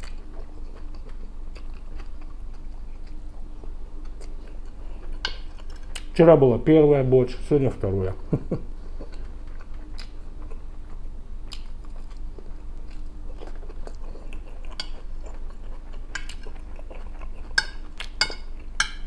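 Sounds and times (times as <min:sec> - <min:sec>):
chewing food: 0:00.0 - 0:06.1, 0:08.8 - 0:19.0
steady low hum: 0:00.0 - 0:19.0
metal spoon clinking on plate: 0:17.6 - 0:19.0.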